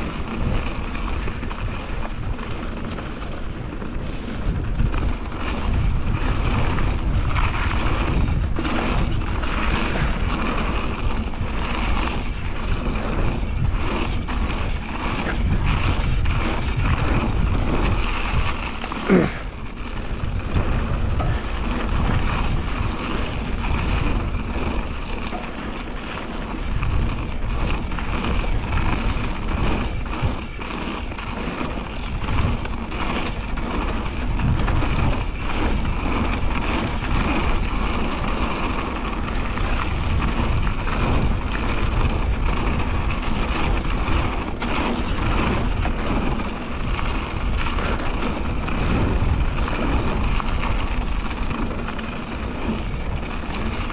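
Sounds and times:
bike clicks and knocks: 0.0 - 53.9
bike tyres rolling on dirt: 0.0 - 53.9
freewheel hub buzzing: 0.0 - 53.9
wind buffeting microphone: 0.0 - 53.9.

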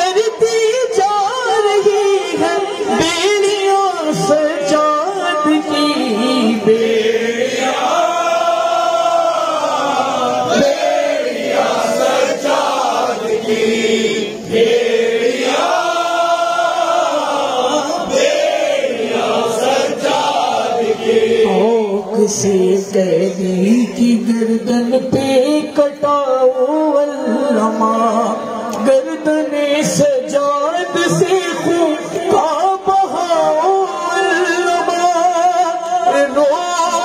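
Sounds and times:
man chanting a lament: 0.0 - 7.7, 19.3 - 37.0.

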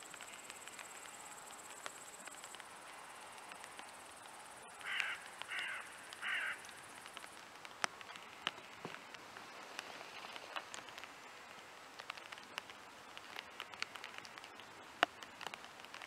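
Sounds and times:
light ticks: 0.0 - 16.0
steady low hiss: 0.0 - 16.0
crow cawing: 4.8 - 6.8.

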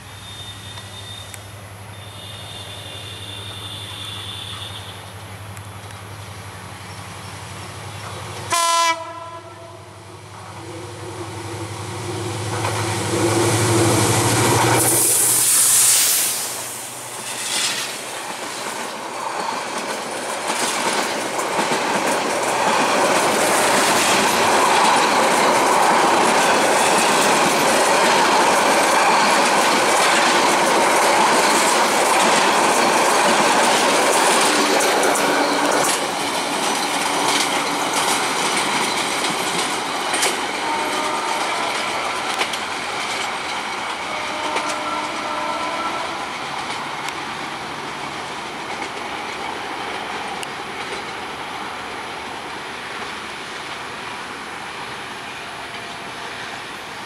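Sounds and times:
locomotive engine passing: 0.0 - 57.0
locomotive horn blast: 1.9 - 5.1, 8.5 - 10.0, 40.5 - 42.4, 44.0 - 46.4
train wheels clickety-clack: 10.2 - 52.1.

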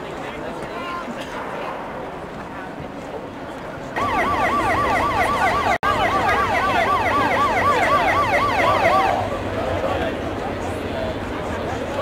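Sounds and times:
siren yelping: 4.0 - 9.4.

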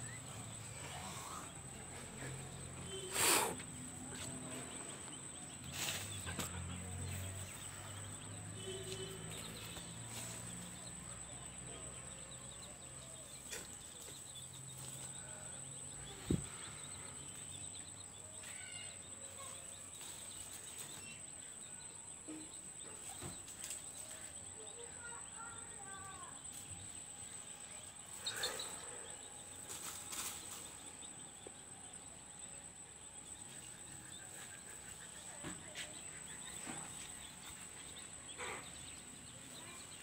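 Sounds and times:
faint bird calls: 2.2 - 3.8.

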